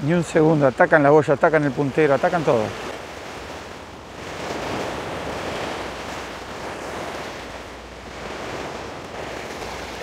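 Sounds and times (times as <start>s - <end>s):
surf washing against rocks: 0.0s - 10.0s
wind on microphone: 2.6s - 10.0s.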